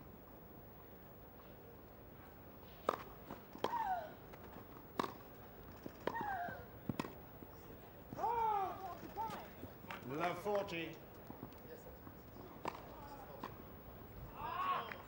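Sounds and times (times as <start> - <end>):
tennis ball struck by rackets: 2.8 - 6.3, 6.9 - 7.2, 12.5 - 13.6.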